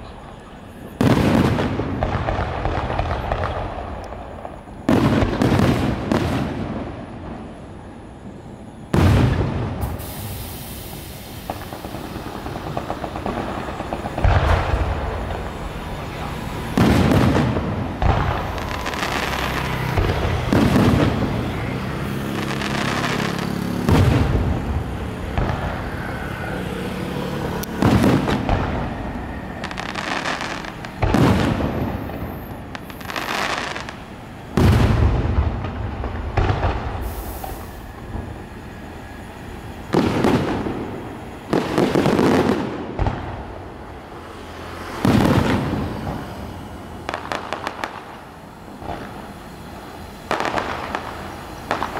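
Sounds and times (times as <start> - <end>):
firework shells booming: 0.8 - 7.7, 8.8 - 26.1, 27.6 - 38.7, 39.4 - 43.8, 45.0 - 46.4, 47.0 - 49.4, 50.2 - 51.9.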